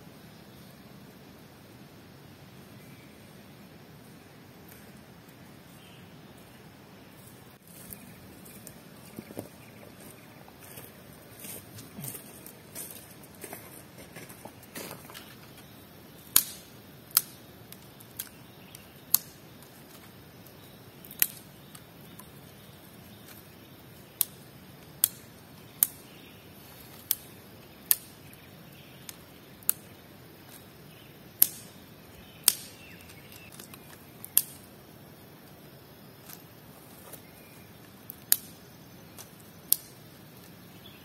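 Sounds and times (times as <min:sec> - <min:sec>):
faint outdoor background: 0:00.0 - 0:41.0
twigs snapping: 0:16.3 - 0:23.5, 0:24.1 - 0:26.1, 0:26.8 - 0:28.4, 0:29.0 - 0:30.7, 0:31.4 - 0:34.7, 0:36.2 - 0:40.6.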